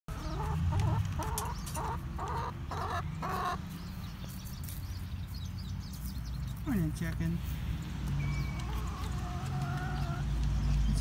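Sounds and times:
hens clucking: 0:00.1 - 0:03.8, 0:08.6 - 0:10.5.

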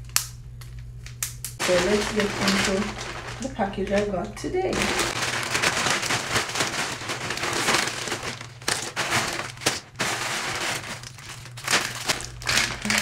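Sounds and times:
plastic bag crinkling and tearing: 0:01.6 - 0:13.0.

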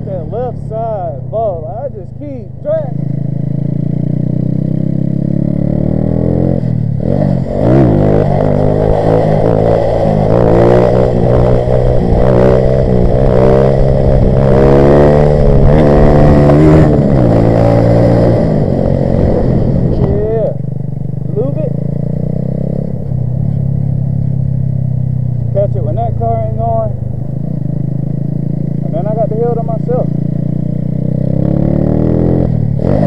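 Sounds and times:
mini bike engine revving: 0:30.4 - 0:33.0.

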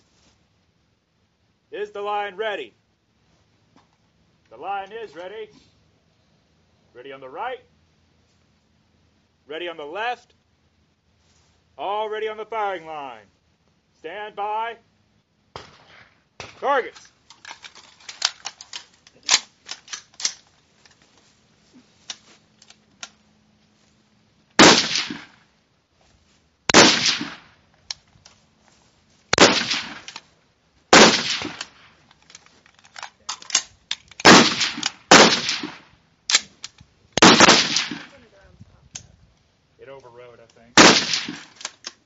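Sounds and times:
distant rifle shots: 0:15.5 - 0:16.7, 0:24.6 - 0:25.4, 0:26.7 - 0:27.6, 0:29.3 - 0:30.2, 0:30.9 - 0:32.0, 0:34.2 - 0:36.0, 0:37.2 - 0:38.2, 0:40.8 - 0:41.6
loud rifle shots with echo: 0:24.6 - 0:25.4, 0:26.7 - 0:27.5, 0:29.3 - 0:30.1, 0:30.9 - 0:31.9, 0:34.2 - 0:35.9, 0:37.2 - 0:38.2, 0:40.8 - 0:41.5.

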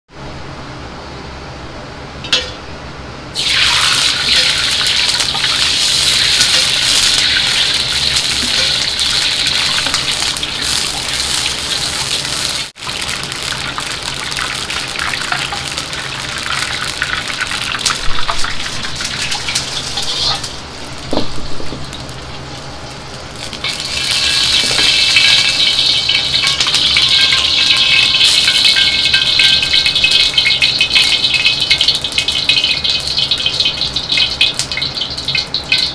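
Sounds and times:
steady low hum: 0:00.1 - 0:03.4, 0:04.1 - 0:28.2
ladle in wok: 0:03.4 - 0:20.7
liquid hissing in hot wok: 0:03.4 - 0:22.3, 0:23.5 - 0:35.8.

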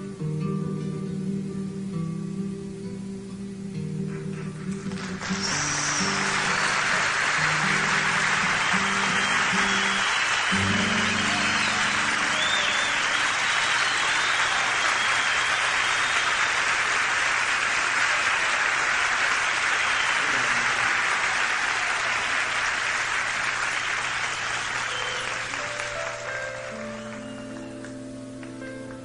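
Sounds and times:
slow held instrumental notes: 0:00.0 - 0:14.0, 0:24.8 - 0:29.0
audience applauding: 0:04.1 - 0:29.0.

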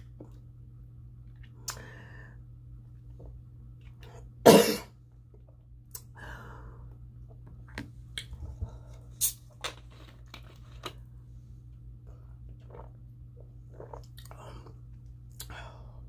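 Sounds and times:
woman coughing: 0:04.5 - 0:04.9.

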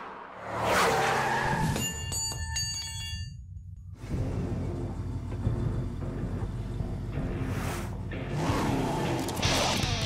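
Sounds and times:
ringing metallic chime: 0:01.8 - 0:03.6.

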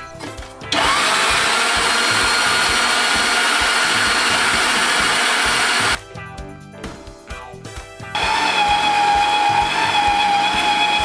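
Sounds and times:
electric meat grinder whining: 0:00.7 - 0:06.0, 0:08.2 - 0:11.0.

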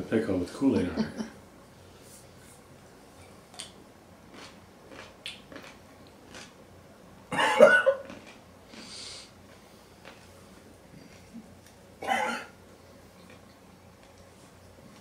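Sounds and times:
man chewing: 0:03.5 - 0:06.6, 0:07.6 - 0:11.8, 0:13.1 - 0:15.0
hissing breath: 0:08.7 - 0:09.4.

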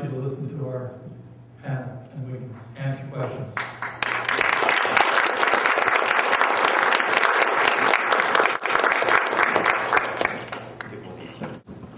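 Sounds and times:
audience applauding: 0:03.6 - 0:11.0.

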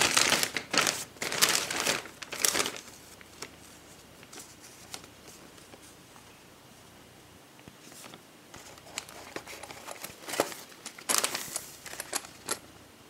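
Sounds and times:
packing liner crinkling: 0:00.0 - 0:03.6, 0:08.0 - 0:12.6.

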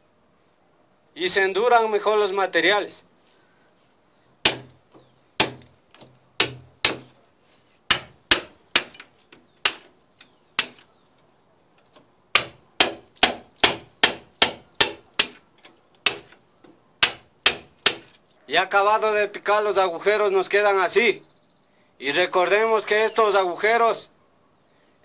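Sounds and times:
hammer striking steel chisel: 0:04.4 - 0:04.7, 0:06.4 - 0:07.1, 0:07.9 - 0:09.9, 0:10.6 - 0:10.8, 0:12.4 - 0:15.4, 0:16.0 - 0:16.4, 0:17.0 - 0:18.1.

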